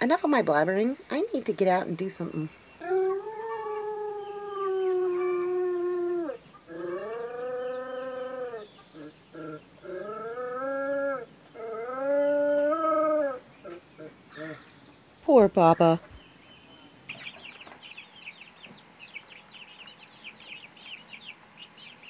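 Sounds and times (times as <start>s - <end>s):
dog howling: 2.8s - 14.6s.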